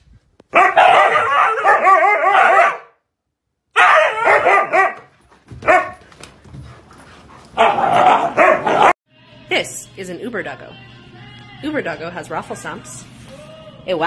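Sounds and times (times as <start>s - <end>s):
huskies barking and yowling: 0.5s - 3.0s, 3.8s - 6.1s, 7.0s - 9.0s.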